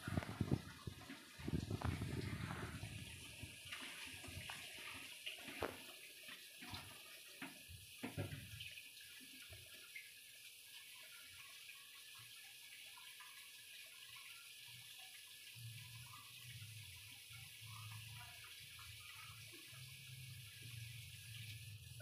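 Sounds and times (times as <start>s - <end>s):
soup bubbling and popping: 0.0s - 8.5s.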